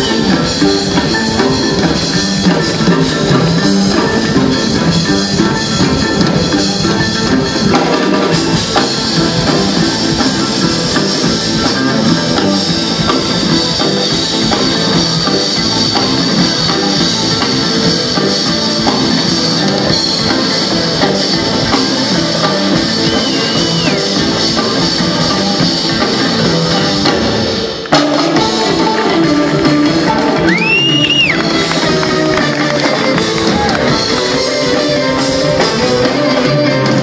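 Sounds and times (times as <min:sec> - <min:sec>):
jazz fusion band playing: 0:00.0 - 0:37.0.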